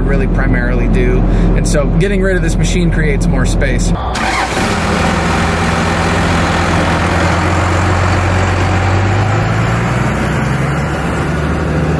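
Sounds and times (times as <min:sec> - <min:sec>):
pickup truck engine running: 0:03.8 - 0:11.9.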